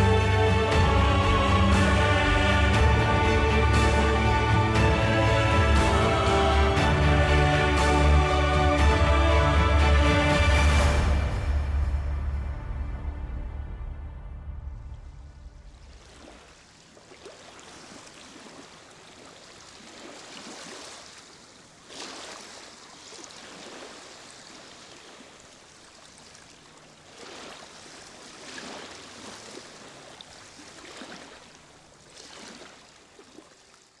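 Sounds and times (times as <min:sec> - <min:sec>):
water washing on shore: 0:15.5 - 0:34.0.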